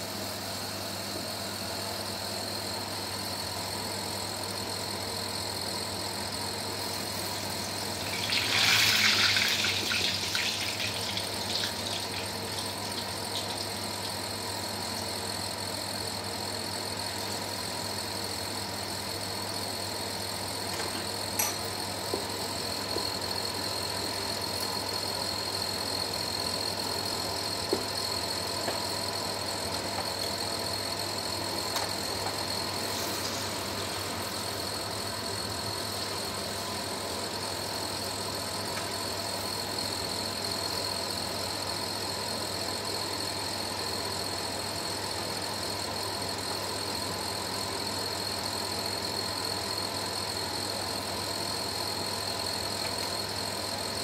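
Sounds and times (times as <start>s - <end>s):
steady hum: 0.0s - 40.8s
food sizzling in hot oil: 6.5s - 15.0s, 32.0s - 36.7s.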